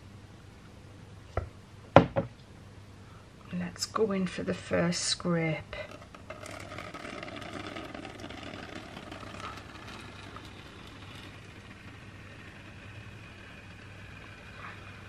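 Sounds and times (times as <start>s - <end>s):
low hum: 5.7s - 15.0s.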